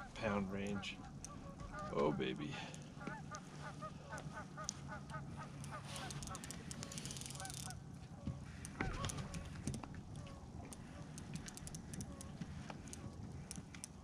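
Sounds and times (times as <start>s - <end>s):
geese honking: 0.0s - 13.2s.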